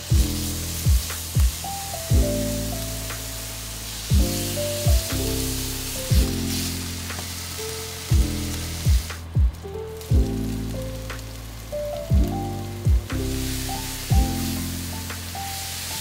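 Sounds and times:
background music with chords: 0.0 - 16.0
meat sizzling in a frying pan: 0.0 - 16.0
deep kick drum: 0.1 - 2.3, 4.1 - 5.1, 6.1 - 6.4, 8.1 - 10.3, 12.1 - 13.3, 14.1 - 14.4.

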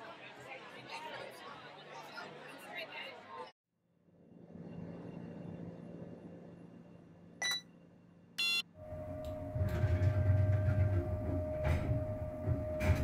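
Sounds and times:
short electronic beeps: 7.4 - 7.6, 8.4 - 8.6.

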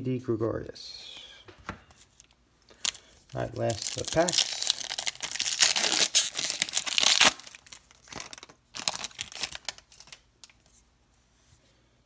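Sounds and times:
foil wrapper tearing and crinkling: 2.8 - 10.2.

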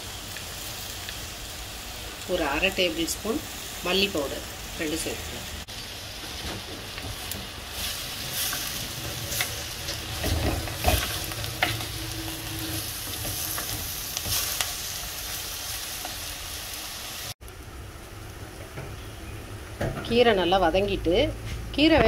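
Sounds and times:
greens sizzling in oil: 0.0 - 21.9
spatula scraping and knocking pot: 8.5 - 14.6.

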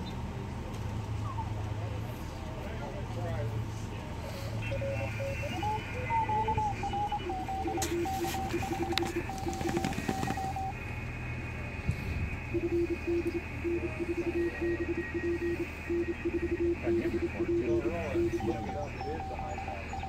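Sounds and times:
steady low hum: 4.4 - 20.0
high morse code tone: 4.6 - 20.0
low morse code tone: 4.6 - 20.0.

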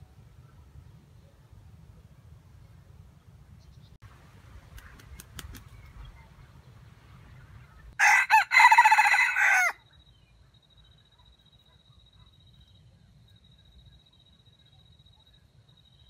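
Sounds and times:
rooster crowing: 8.0 - 9.8.

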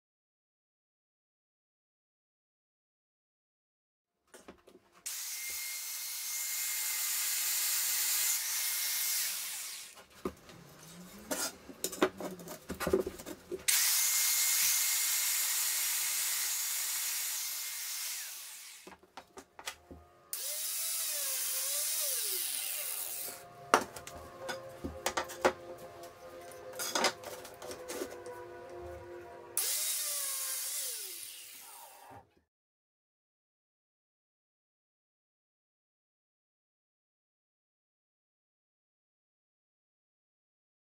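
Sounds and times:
power tool cutting plywood: 5.1 - 10.1, 13.7 - 19.0, 20.3 - 23.5, 29.6 - 32.2
knocks and clatter of handling: 11.2 - 13.7.

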